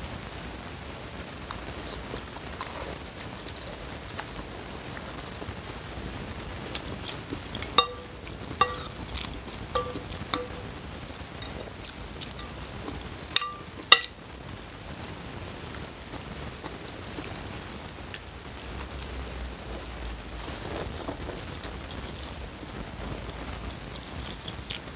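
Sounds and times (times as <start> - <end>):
metal cutlery clinking on a bowl: 7.6 - 10.8, 11.4 - 12.6, 13.3 - 14.2.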